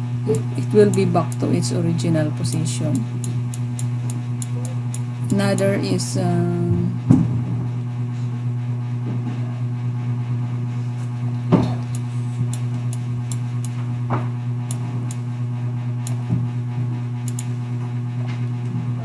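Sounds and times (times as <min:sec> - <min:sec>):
low electrical hum: 0:00.0 - 0:19.0
computer mouse clicks: 0:17.2 - 0:17.5.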